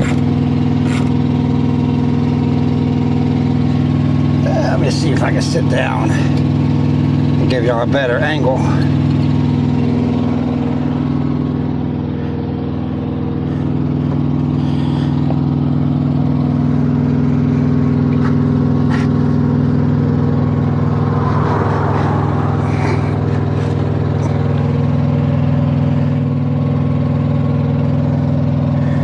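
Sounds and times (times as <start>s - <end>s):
diesel truck engine idling: 0.0s - 29.0s.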